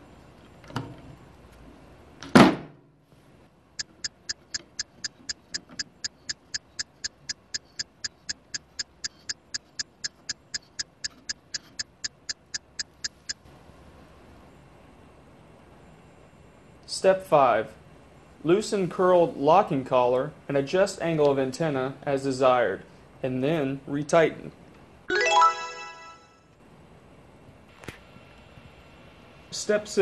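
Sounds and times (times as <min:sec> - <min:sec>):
steady even ticking: 0:03.8 - 0:13.4.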